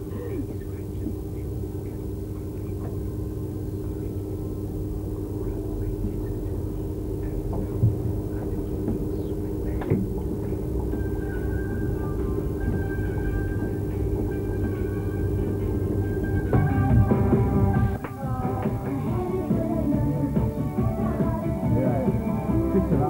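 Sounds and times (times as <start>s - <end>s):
electrical hum and low rumble: 0.0s - 23.0s
higher steady tone: 10.6s - 23.0s.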